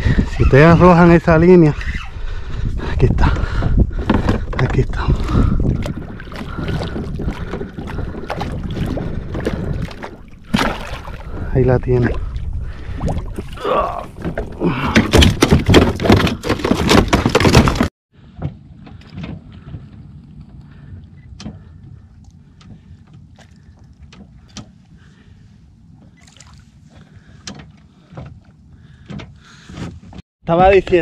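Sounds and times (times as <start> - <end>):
water lapping: 3.4 - 15.7, 19.0 - 29.7
fish splashing and thrashing: 4.0 - 11.5, 12.1 - 17.9, 21.6 - 29.1.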